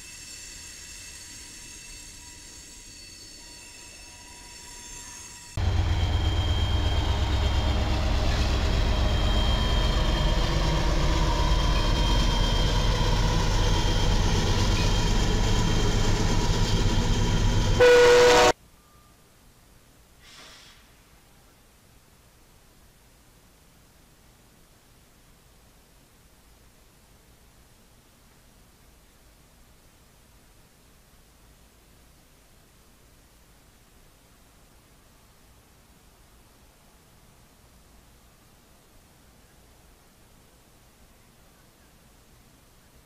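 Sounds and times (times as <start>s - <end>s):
train wheel noise: 0.0s - 18.6s
freight cars rolling past: 4.1s - 18.4s
diesel locomotive engine rumble: 5.3s - 18.6s
train horn blast: 17.7s - 18.6s.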